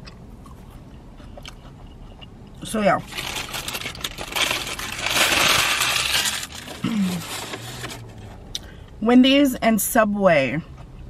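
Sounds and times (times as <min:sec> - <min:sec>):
dense crackling crinkling: 0:02.9 - 0:08.4.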